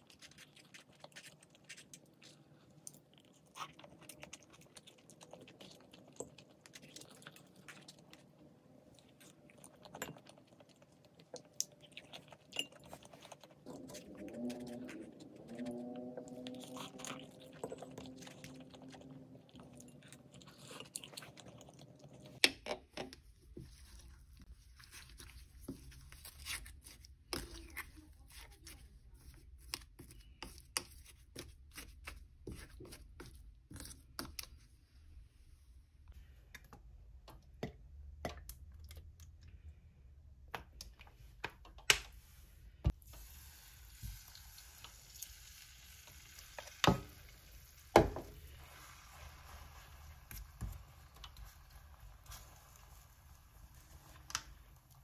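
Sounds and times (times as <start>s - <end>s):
chewing and crunching: 0.0s - 22.4s.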